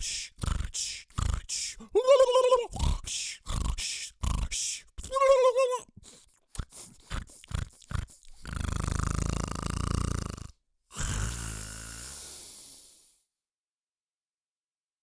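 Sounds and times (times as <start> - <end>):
person imitating snoring: 0.0 - 5.8, 6.5 - 13.2.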